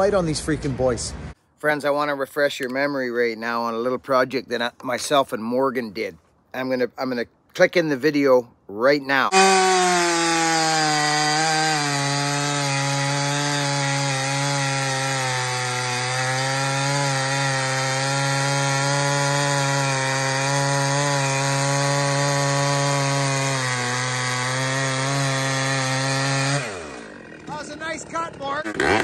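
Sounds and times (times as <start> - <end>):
chainsaw cutting wood: 9.3 - 29.0.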